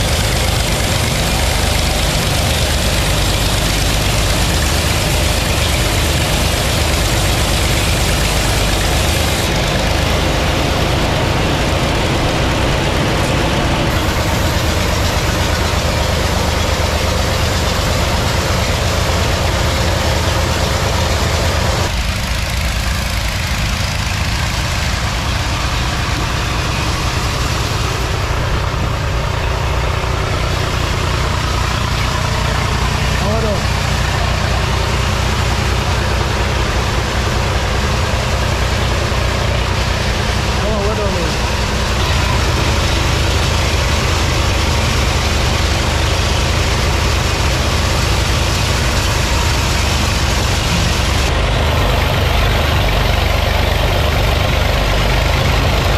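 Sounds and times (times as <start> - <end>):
band saw machinery droning: 0.0 - 55.9.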